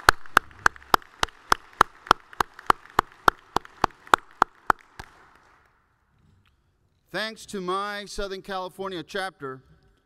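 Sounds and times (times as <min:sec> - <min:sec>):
audience applause: 0:00.0 - 0:05.6
hands clapping near microphone: 0:00.0 - 0:05.8.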